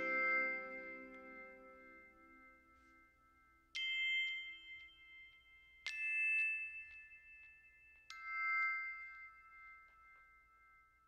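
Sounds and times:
bell-like chime notes: 0.0 - 10.9.

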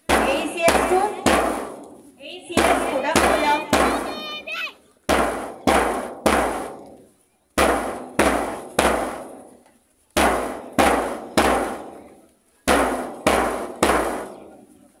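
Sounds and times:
bass drum strikes: 0.0 - 1.9, 5.1 - 6.9, 7.6 - 9.4, 10.2 - 12.0, 12.7 - 14.4.

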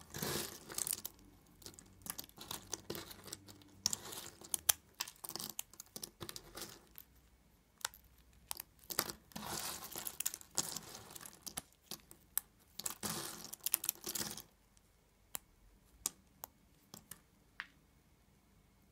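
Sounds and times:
soap plates snapping and crackling: 0.0 - 7.2, 7.8 - 14.5.

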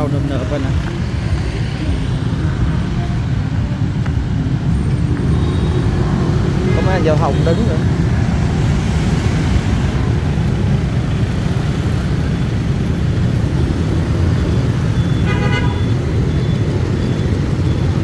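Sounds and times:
dense street traffic: 0.0 - 18.0
vehicle horn honking: 15.1 - 15.9.

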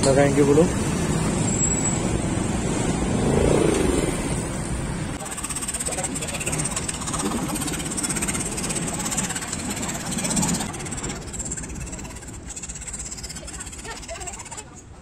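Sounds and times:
scroll saw cutting wood: 5.2 - 14.7.

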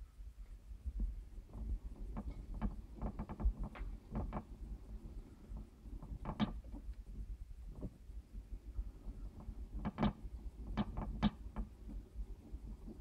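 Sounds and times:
mice clicking and scratching: 5.3 - 6.8, 9.2 - 12.0.

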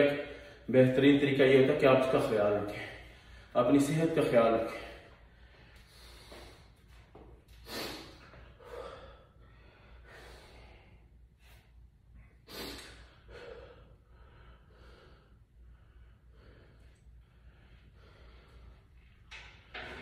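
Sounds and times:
man breathing hard: 2.7 - 3.6, 4.7 - 19.2.

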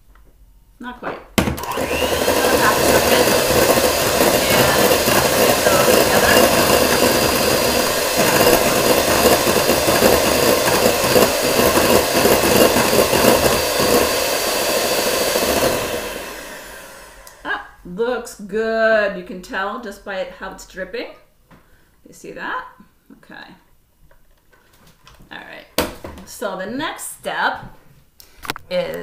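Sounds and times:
electric hand mixer whipping: 1.4 - 17.5.

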